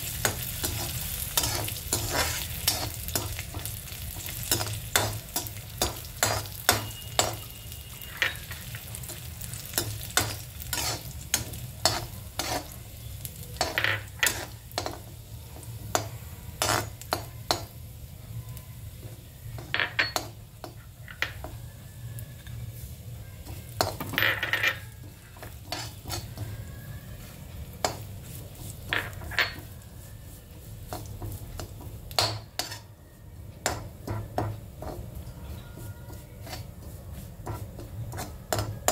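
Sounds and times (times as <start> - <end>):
nuts sizzling: 0.0 - 38.9
metal spatula scraping pan: 0.1 - 15.1, 16.0 - 17.1, 23.8 - 26.6, 27.2 - 33.0, 33.7 - 38.9.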